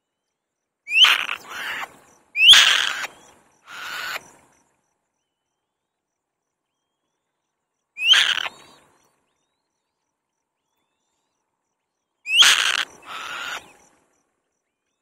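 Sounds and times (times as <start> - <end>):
hoarse bird call: 0.9 - 4.2, 8.0 - 8.8, 12.3 - 13.8
bird harsh screeching calls: 0.9 - 4.3, 8.0 - 8.8, 12.3 - 13.8.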